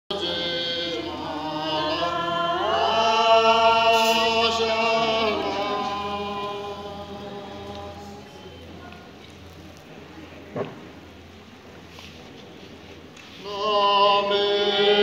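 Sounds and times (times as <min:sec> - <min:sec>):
group of voices singing: 0:00.1 - 0:08.6, 0:13.4 - 0:15.0.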